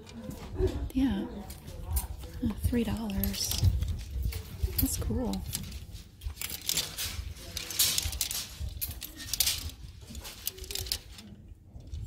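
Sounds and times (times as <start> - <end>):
hangers clicking on metal rack: 2.8 - 11.9.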